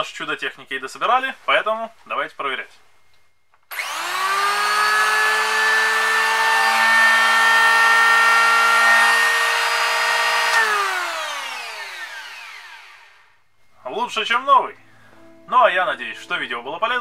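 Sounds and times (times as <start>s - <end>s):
electric hand planer whine: 3.7s - 13.4s.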